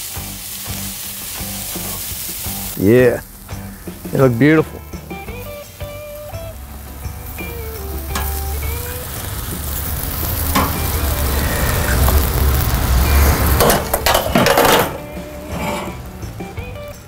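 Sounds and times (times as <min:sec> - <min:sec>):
sausages sizzling on grill: 0:00.0 - 0:17.0
low rumble: 0:06.5 - 0:16.2.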